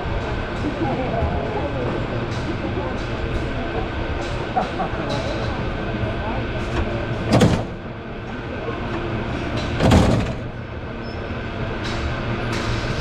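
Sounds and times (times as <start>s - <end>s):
streetcar rumbling on rails: 0.0s - 13.0s
loud clunks: 7.2s - 8.0s, 9.5s - 10.6s.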